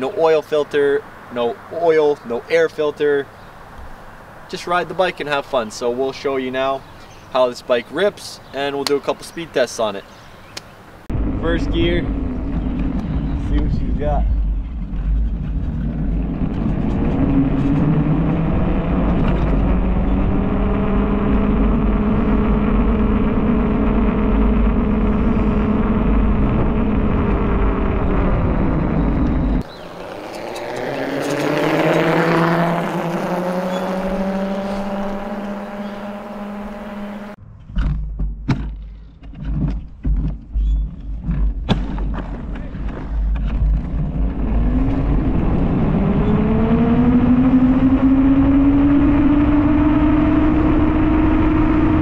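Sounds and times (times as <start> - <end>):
wind buffeting microphone: 11.1 - 36.7, 39.6 - 52.0
electric motor whine: 15.6 - 37.4, 44.0 - 52.0.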